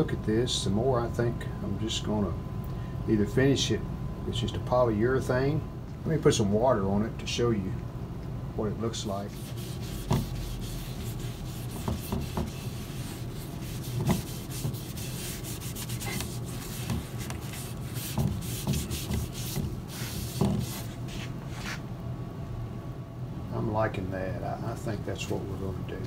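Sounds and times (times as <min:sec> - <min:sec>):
damp cloth rubbing on wood: 0:09.2 - 0:21.8.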